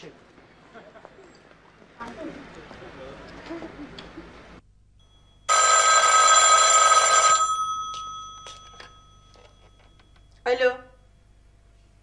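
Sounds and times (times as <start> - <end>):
telephone ringing: 5.0 - 10.4.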